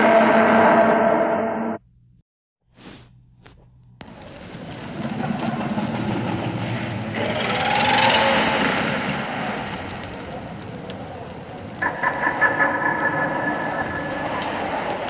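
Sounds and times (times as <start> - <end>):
rushing noise with low rumble: 4.0 - 12.3.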